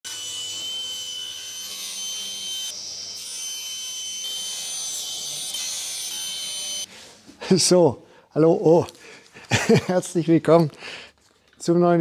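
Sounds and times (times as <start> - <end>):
saw cutting wood: 0.0 - 6.9
table saw blade whine: 0.0 - 7.0.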